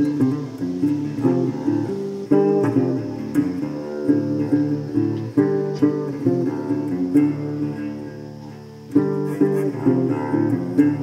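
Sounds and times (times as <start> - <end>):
plucked guitar music: 0.0 - 11.0.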